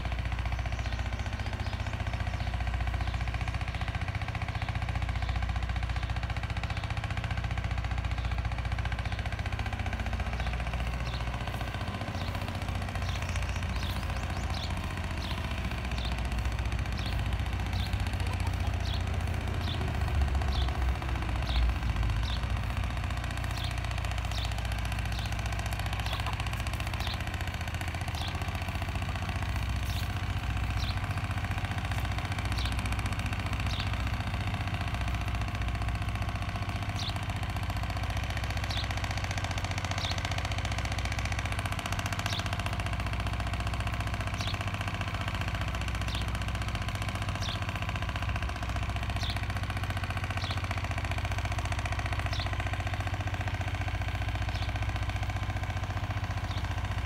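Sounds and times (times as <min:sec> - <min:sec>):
low mechanical drone: 0:00.0 - 0:57.0
bird chirping: 0:10.3 - 0:35.3.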